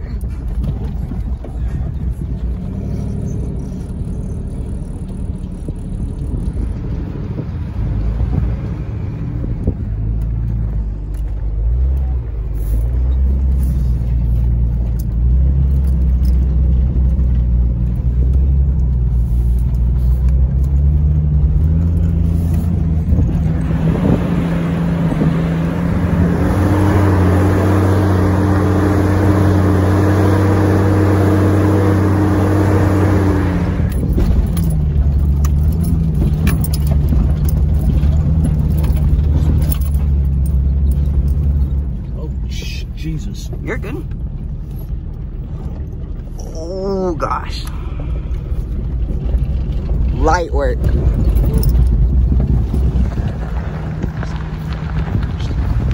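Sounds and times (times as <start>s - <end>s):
suv engine under load: 0.0s - 55.9s.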